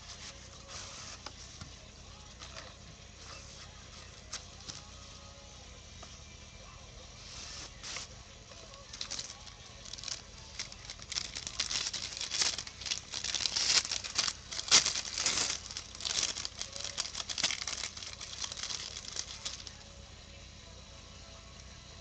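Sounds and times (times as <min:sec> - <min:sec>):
foil wrapper tearing and crinkling: 0:08.7 - 0:19.8.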